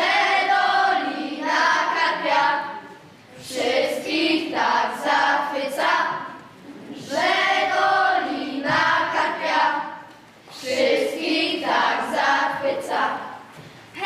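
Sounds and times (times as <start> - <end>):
children singing together: 0.0 - 14.0.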